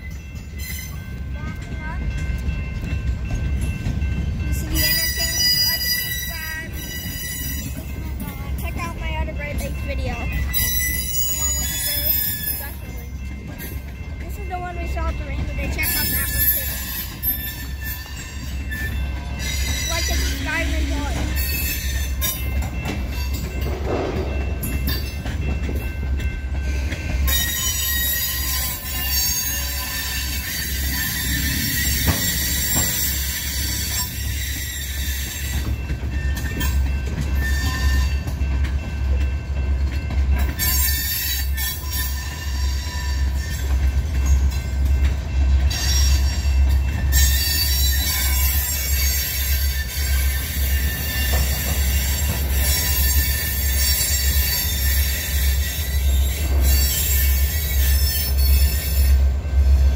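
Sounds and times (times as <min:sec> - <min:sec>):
steel wheels squealing on rail: 0:00.0 - 0:08.6, 0:09.6 - 0:14.2, 0:15.4 - 0:59.9
low rumble of freight cars: 0:00.0 - 0:59.9.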